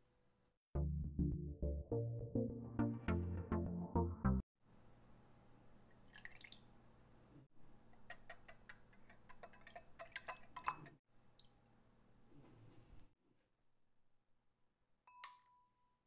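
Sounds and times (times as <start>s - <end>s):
whisk clicking against glass bowl: 8.0s - 11.0s.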